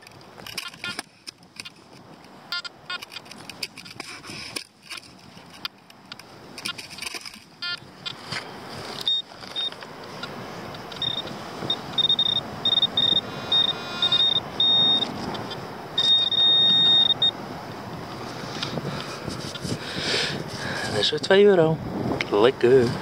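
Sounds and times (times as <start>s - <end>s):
pinpointer beeping: 2.5s - 3.2s, 7.6s - 7.9s, 9.0s - 17.4s.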